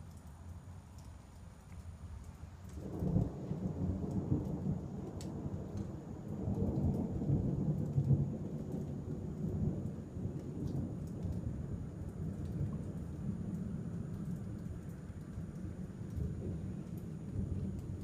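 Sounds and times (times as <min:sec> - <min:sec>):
rolling thunder: 0:02.8 - 0:14.2, 0:15.9 - 0:18.0.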